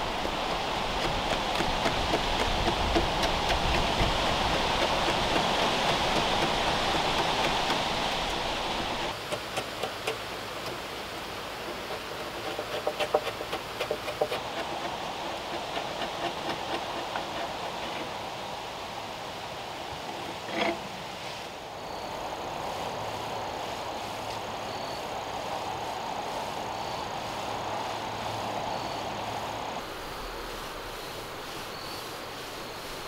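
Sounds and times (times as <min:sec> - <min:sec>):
steady rushing noise: 0:00.0 - 0:33.0
chisel scraping wood: 0:00.1 - 0:10.2, 0:11.6 - 0:18.1, 0:20.1 - 0:20.8.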